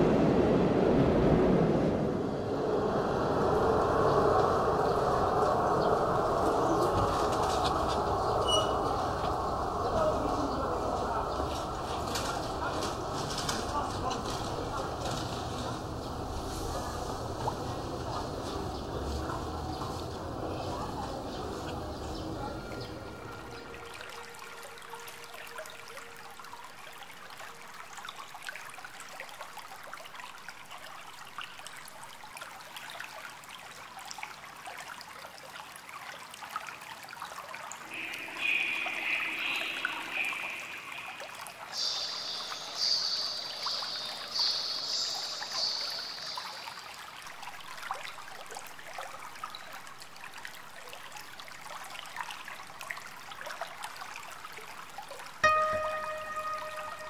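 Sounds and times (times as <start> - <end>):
water trickling: 2.4 - 57.0
high buzzing calls: 37.9 - 46.6.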